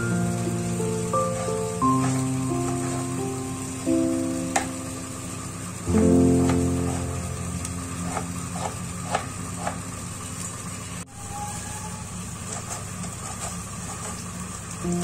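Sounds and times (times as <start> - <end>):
low hum: 0.0 - 11.1.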